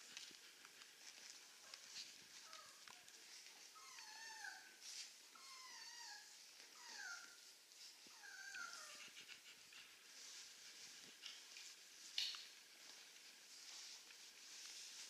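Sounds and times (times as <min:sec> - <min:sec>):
puppy whimpering: 0:03.6 - 0:07.5, 0:08.1 - 0:09.9.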